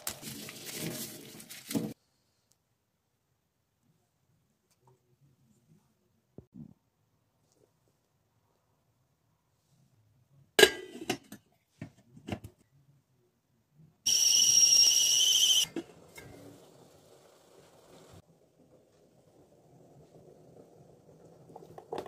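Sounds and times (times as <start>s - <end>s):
steam whistling hiss: 14.1s - 15.7s.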